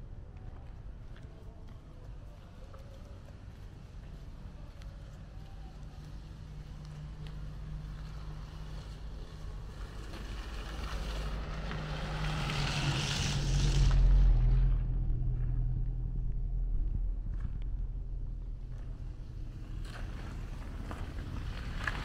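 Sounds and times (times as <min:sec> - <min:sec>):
vehicle engine passing by: 0:06.9 - 0:17.8.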